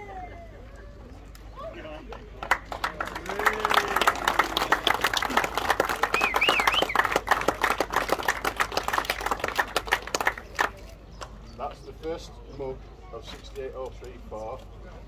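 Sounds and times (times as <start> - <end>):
crowd applauding: 2.1 - 10.8
short wavering whistle: 6.2 - 7.0.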